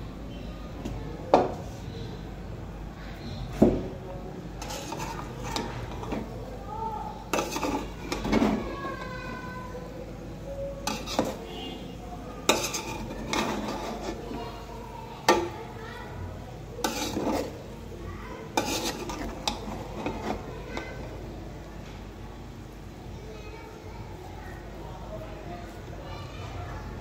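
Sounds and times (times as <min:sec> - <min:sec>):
spoon scraping rice: 0:04.5 - 0:06.3, 0:07.3 - 0:08.8, 0:10.8 - 0:11.7, 0:12.4 - 0:14.6, 0:16.8 - 0:17.7, 0:18.5 - 0:21.1
spoon clinking on metal pot: 0:12.5 - 0:14.2.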